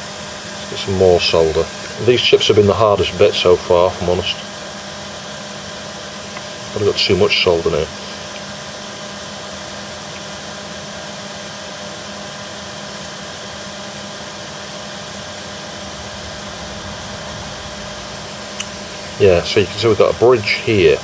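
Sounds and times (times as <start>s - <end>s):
faint constant tones: 0.0s - 21.0s
steady mechanical hum: 0.0s - 21.0s.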